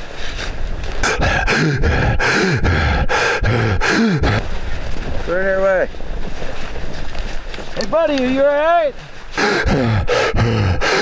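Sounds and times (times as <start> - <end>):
person breathing hard and fast: 0.1 - 4.4, 9.3 - 11.0
person grunting: 1.0 - 4.4, 9.4 - 11.0.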